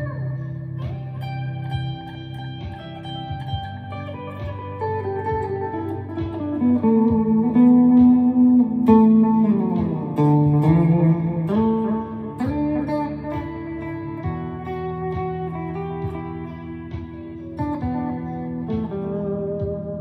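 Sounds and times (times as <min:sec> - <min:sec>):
ambient electric guitar: 0:00.0 - 0:20.0.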